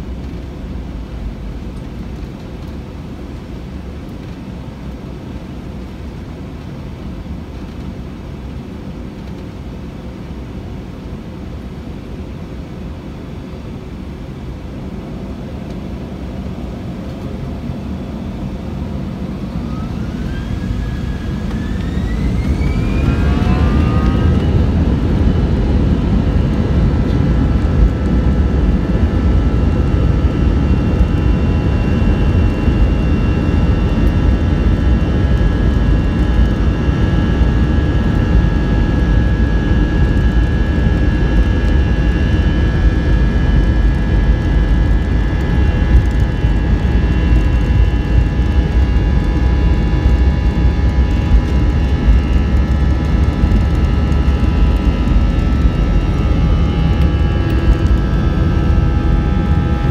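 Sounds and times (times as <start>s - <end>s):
jet engine whine: 0.0s - 59.9s
jet engines rumbling: 0.0s - 59.9s.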